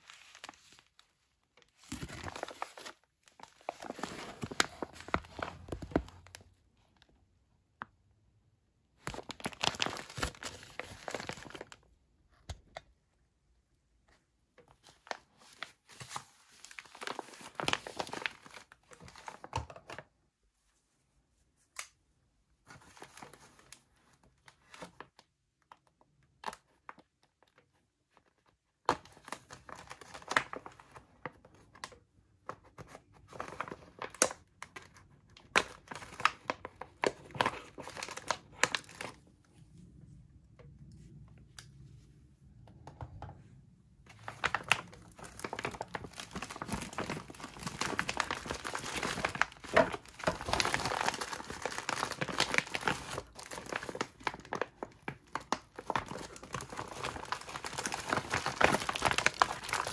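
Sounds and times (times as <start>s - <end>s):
plastic bag crinkling: 0.0s - 6.5s, 9.1s - 11.8s, 35.6s - 39.3s, 44.1s - 59.9s.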